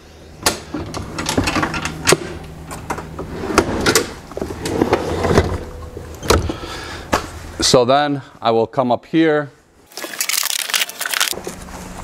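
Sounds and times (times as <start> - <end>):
steady low hum: 0.0 - 8.4.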